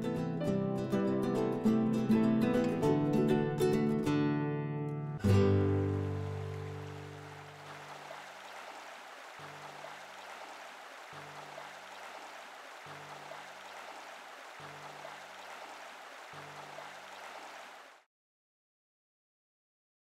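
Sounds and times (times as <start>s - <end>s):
flowing river water: 5.5s - 18.1s.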